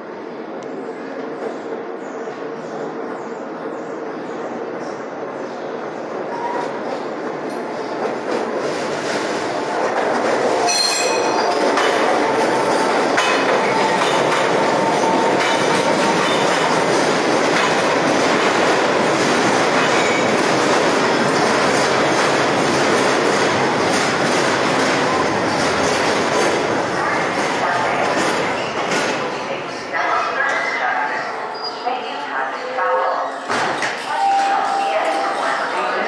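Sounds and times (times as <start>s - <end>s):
train running along track: 0.0s - 36.0s
high train squeal: 6.2s - 7.1s, 10.6s - 16.9s, 19.8s - 20.4s, 30.5s - 32.2s, 33.0s - 35.7s.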